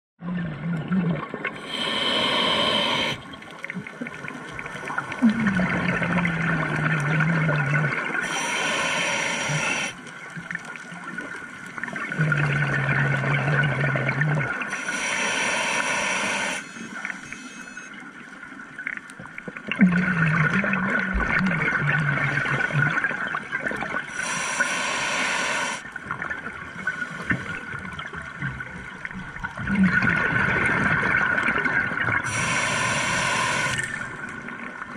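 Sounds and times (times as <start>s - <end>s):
exhale bubbling rush: 1.4s - 3.4s, 5.1s - 10.0s, 12.1s - 17.8s, 23.9s - 28.1s, 29.5s - 34.3s
regulator inhale hiss: 1.6s - 3.3s, 8.2s - 10.1s, 14.7s - 17.9s, 24.1s - 25.9s, 32.3s - 34.2s.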